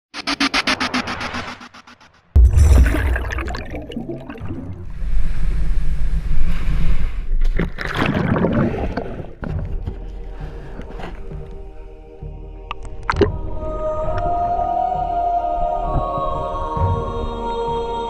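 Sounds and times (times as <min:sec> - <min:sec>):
dull underwater sound: 0:00.2 - 0:05.8, 0:12.7 - 0:14.3
wave splash: 0:02.4 - 0:05.0.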